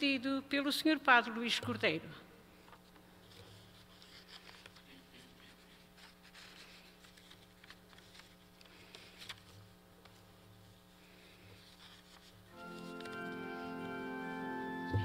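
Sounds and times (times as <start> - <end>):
faint clicks and rustles: 2.6 - 13.4.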